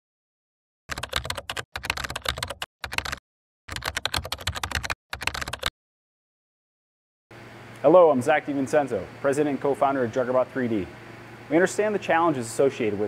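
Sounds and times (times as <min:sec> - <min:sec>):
computer keyboard typing: 0:00.9 - 0:05.7.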